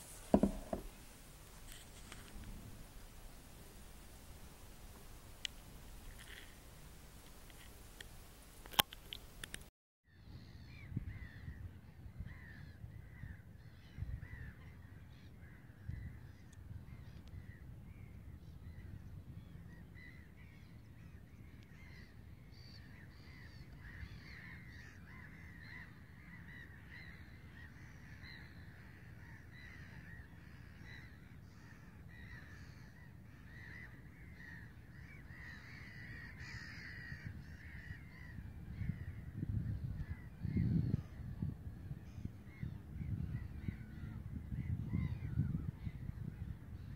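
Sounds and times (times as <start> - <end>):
microphone handling bumps: 0.0 - 2.8
wind on microphone: 0.0 - 21.1, 35.3 - 46.9
flock of birds calling: 22.9 - 39.2.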